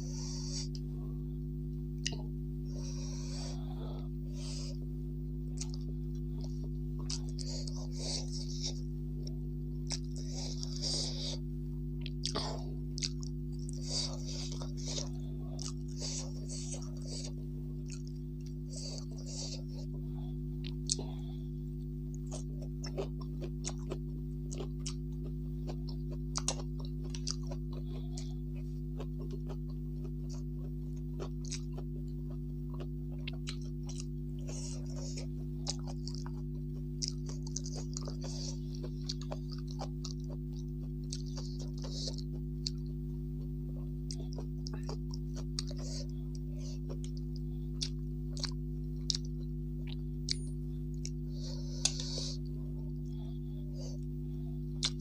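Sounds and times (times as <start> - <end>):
steady low hum: 0.0 - 55.0
chewing and crunching food: 1.9 - 55.0.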